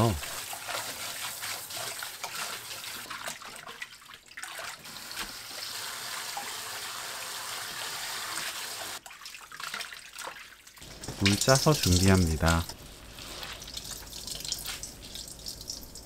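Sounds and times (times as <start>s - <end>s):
tap water running into metal bowl: 10.9s - 16.0s.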